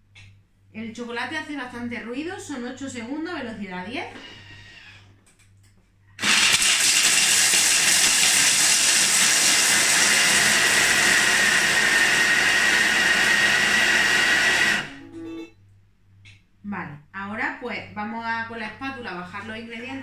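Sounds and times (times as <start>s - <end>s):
food processor grinding whir: 6.2s - 15.0s.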